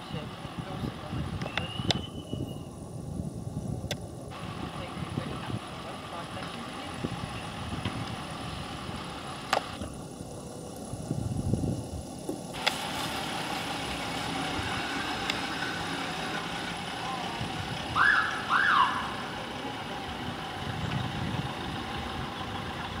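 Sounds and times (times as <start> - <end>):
ambulance engine driving off: 0.0 - 23.0
siren whoops: 17.9 - 19.2.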